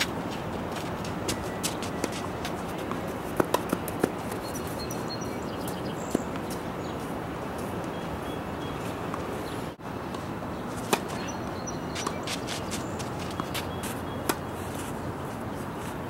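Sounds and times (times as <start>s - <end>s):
racket hitting tennis ball: 0.0s - 4.8s, 10.1s - 11.3s, 11.9s - 15.2s
light ticks and scuffs: 0.0s - 5.0s, 11.9s - 16.0s.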